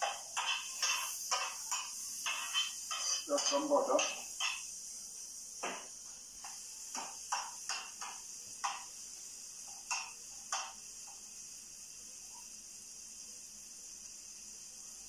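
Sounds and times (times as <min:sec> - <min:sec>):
utensil knocking against pan: 0:00.0 - 0:04.6, 0:05.6 - 0:08.9, 0:09.8 - 0:10.8
vegetables sizzling in a pan: 0:00.0 - 0:15.0.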